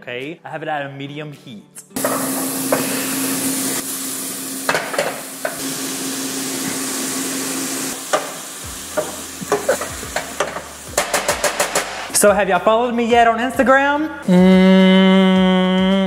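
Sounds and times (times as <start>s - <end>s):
bacon and onion sizzling in pan: 2.0s - 12.0s.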